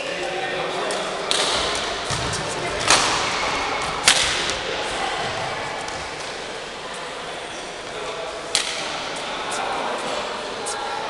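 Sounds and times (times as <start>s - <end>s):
murmur of large hall: 0.0s - 11.0s
racket striking shuttlecock: 1.3s - 4.6s.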